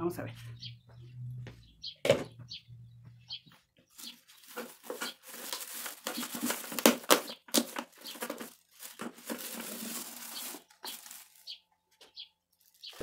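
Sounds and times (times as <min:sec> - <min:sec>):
plastic bag rustling: 0:03.9 - 0:11.7, 0:12.5 - 0:13.0
plastic dustpan scraping: 0:04.0 - 0:11.4.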